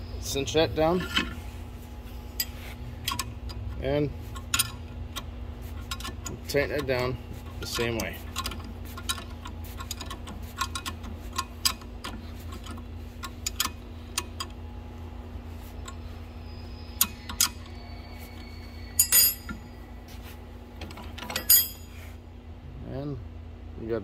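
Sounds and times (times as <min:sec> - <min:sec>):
ratchet wrench clicking: 0:07.6 - 0:14.6
metal clinks: 0:19.0 - 0:19.7, 0:21.2 - 0:22.0.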